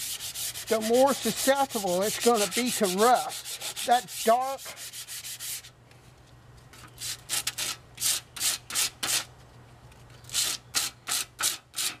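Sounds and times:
sanding metal saw plate: 0.0 - 5.7.

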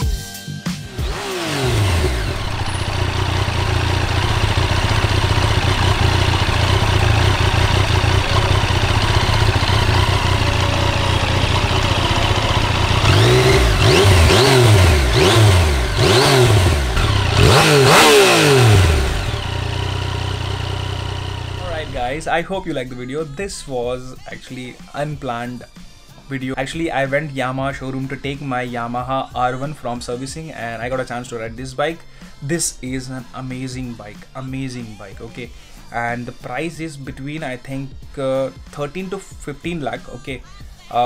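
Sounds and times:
motorcycle engine idling: 0.9 - 24.2
motorcycle throttle blips: 1.0 - 22.3.

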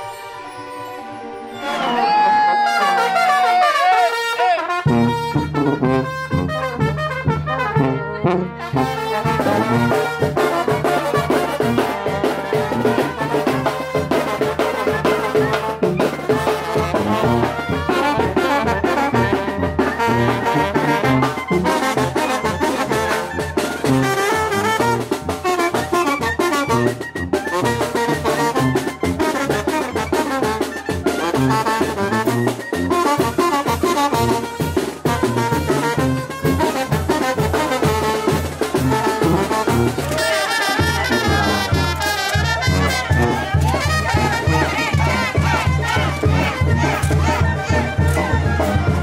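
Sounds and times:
brass band playing: 0.0 - 49.0
drum strokes: 9.3 - 49.0.

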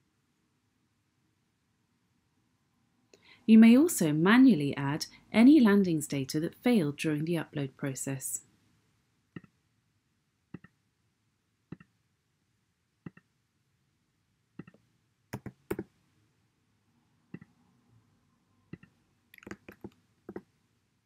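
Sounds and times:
mouse and keyboard clicks: 13.1 - 13.3, 14.6 - 14.8, 15.4 - 15.9, 18.7 - 20.4.

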